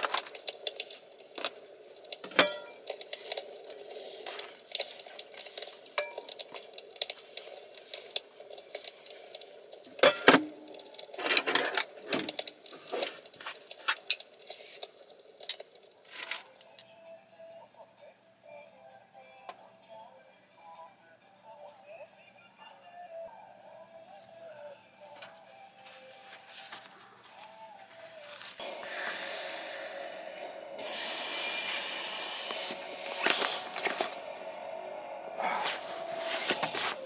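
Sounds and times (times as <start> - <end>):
steady background noise: 0.0 - 16.9
dishes and cutlery clinking: 2.2 - 3.4, 4.3 - 8.9, 9.9 - 14.5.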